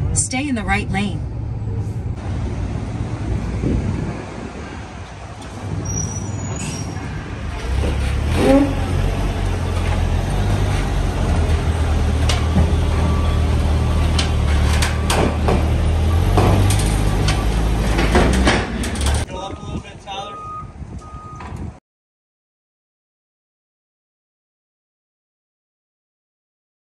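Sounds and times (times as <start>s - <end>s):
heavy vehicle engine rumbling: 0.0s - 21.8s
short squeak: 5.8s - 7.1s, 8.2s - 9.0s
metal clanks and knocks: 7.5s - 19.3s.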